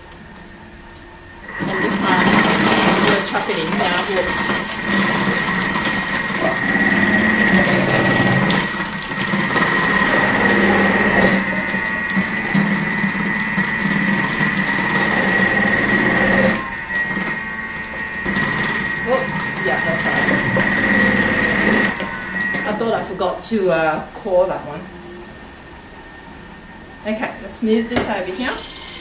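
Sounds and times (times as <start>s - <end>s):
food processor motor whine: 1.4s - 23.4s, 28.0s - 29.0s.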